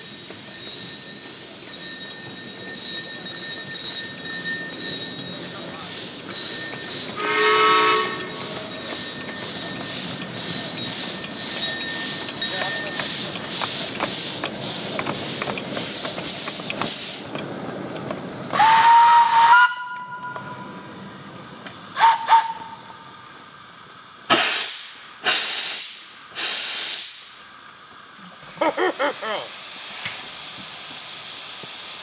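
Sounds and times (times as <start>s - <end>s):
steam hissing: 0.0s - 32.0s
steam locomotive chuffing: 0.0s - 32.0s
steam whistle: 7.2s - 8.5s, 18.5s - 20.8s, 21.9s - 23.1s.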